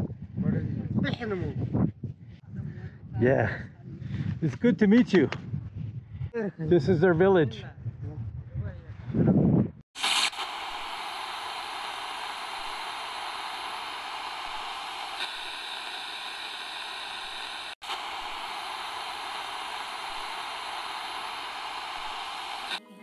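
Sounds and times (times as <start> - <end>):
static-like hiss: 10.0 - 22.8.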